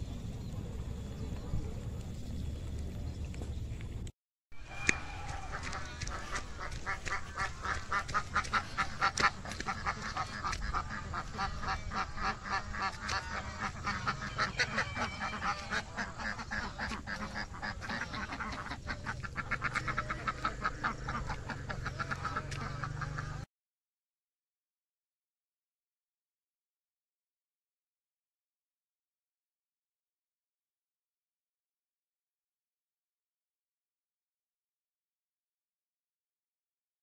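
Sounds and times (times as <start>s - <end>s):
duck quacking: 4.6s - 23.5s.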